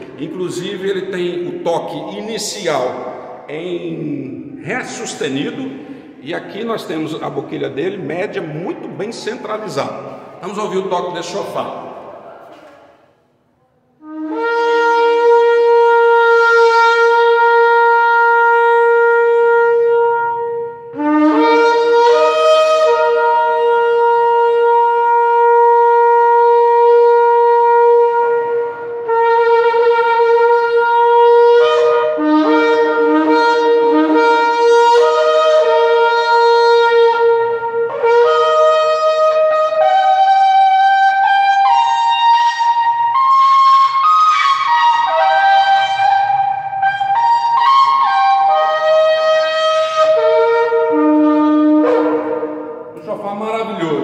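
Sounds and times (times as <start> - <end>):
shofar blasts: 14.0 - 53.0.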